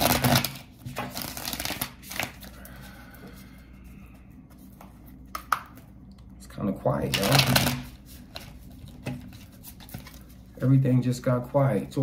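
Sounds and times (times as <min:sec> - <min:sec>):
cards shuffled by hand: 0:00.0 - 0:02.6, 0:07.1 - 0:10.4.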